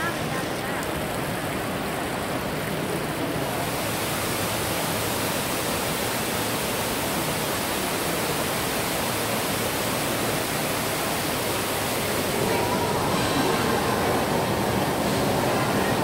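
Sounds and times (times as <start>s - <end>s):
waterfall rushing into pool: 0.0s - 16.0s.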